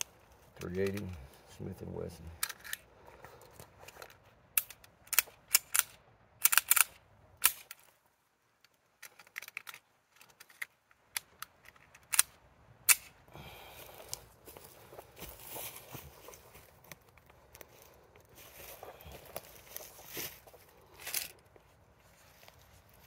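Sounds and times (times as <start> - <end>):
pistol metallic clicks: 4.5 - 7.8, 10.6 - 13.2
rustling: 13.5 - 23.0.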